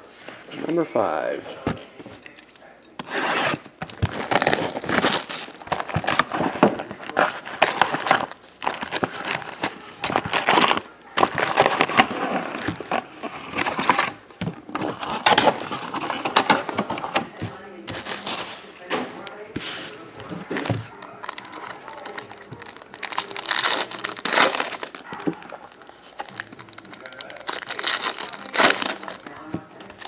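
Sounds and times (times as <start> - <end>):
cardboard scraping: 3.0 - 17.3
foil packs crinkling: 3.5 - 14.2, 20.9 - 30.0.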